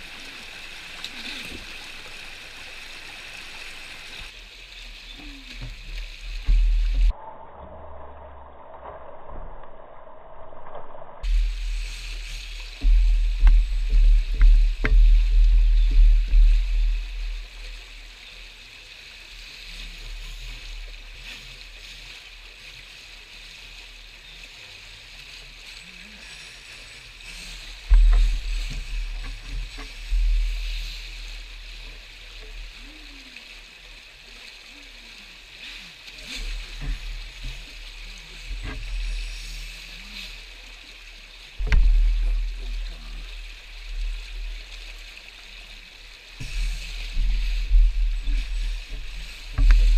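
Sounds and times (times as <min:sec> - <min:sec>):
stream rushing over stones: 0:00.0 - 0:07.2, 0:11.2 - 0:49.9
low rumbles: 0:03.4 - 0:18.5, 0:25.9 - 0:34.0, 0:35.4 - 0:49.9.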